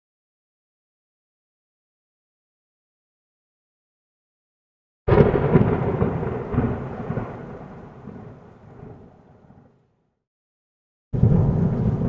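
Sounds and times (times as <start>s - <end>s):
volcanic eruption boom: 5.1s - 9.6s.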